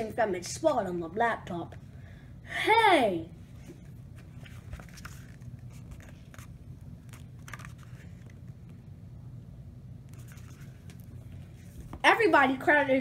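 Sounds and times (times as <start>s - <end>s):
low steady hum: 0.0s - 13.0s
book pages being turned: 3.5s - 8.8s, 10.0s - 12.0s.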